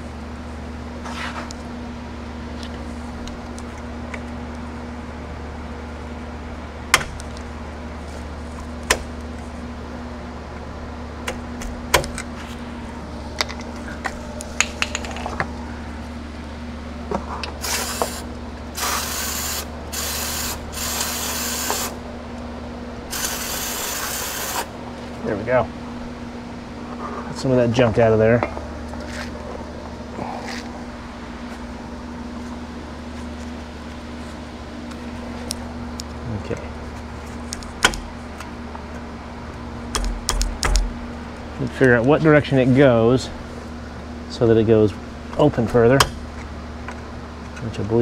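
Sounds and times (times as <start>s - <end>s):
aerosol spray hissing: 17.6s - 18.2s, 18.8s - 22.0s, 23.1s - 24.7s.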